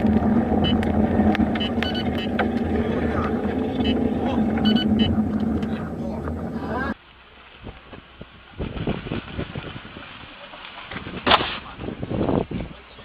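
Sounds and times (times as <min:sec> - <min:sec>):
car engine and road drone: 0:00.0 - 0:08.1
short high beeps: 0:01.6 - 0:02.4, 0:03.8 - 0:05.3.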